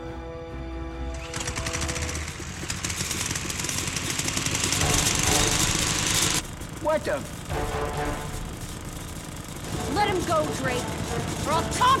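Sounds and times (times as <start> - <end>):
film score music: 0.0 - 3.6, 4.3 - 12.0
petrol lawn mower engine: 1.1 - 12.0.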